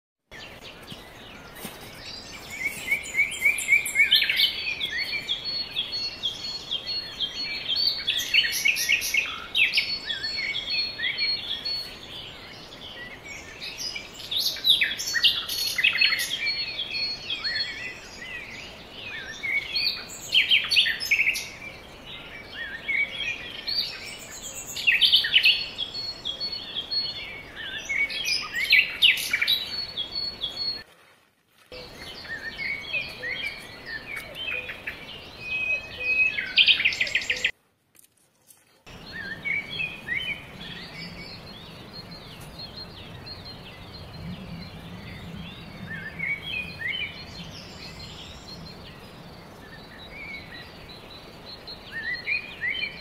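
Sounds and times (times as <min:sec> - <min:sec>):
songbirds chirping and twittering: 0:00.3 - 0:53.0.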